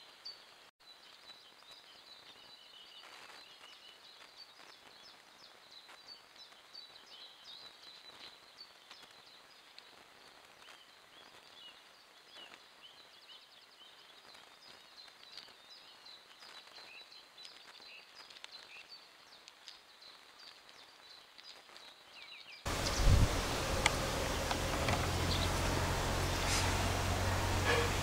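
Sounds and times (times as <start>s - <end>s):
steady hiss: 0.0s - 28.0s
birds chirping and trilling: 22.2s - 28.0s
low hum: 22.7s - 28.0s.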